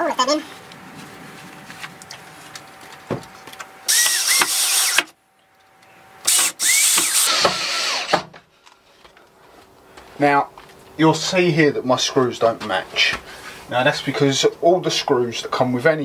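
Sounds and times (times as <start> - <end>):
cordless drill driving screws: 3.9 - 5.1, 6.3 - 8.2.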